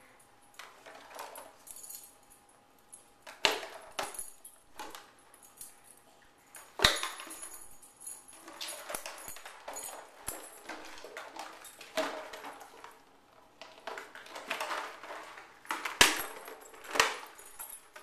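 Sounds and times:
popcorn rattling in bottle: 8.4s - 17.3s.

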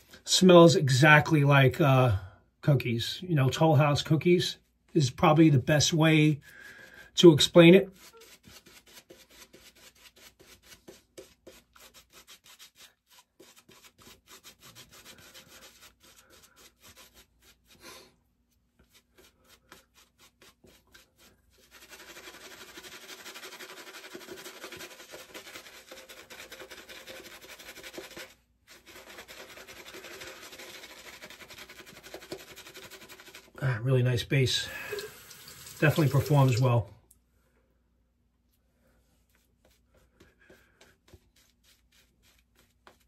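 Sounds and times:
shaving brush scrubbing lather: 7.1s - 18.1s, 18.8s - 33.6s, 34.5s - 36.8s, 39.4s - 43.0s.

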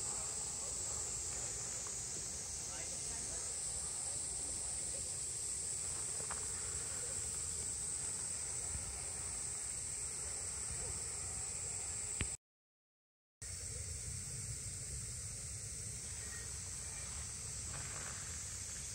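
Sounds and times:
insects droning: 0.0s - 12.4s, 13.4s - 18.9s.

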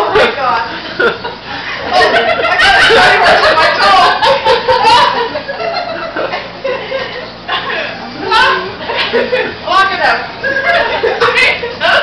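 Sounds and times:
women speaking: 0.0s - 0.8s, 7.6s - 12.0s
women laughing: 0.4s - 9.7s, 10.4s - 12.0s.

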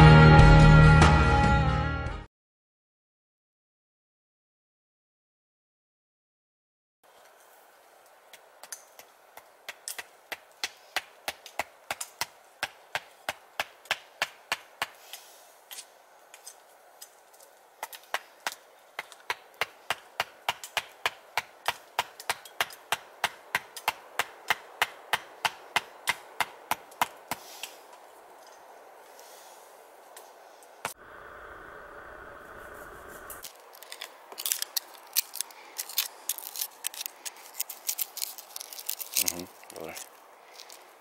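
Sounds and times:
axe striking wood: 19.3s - 27.4s.

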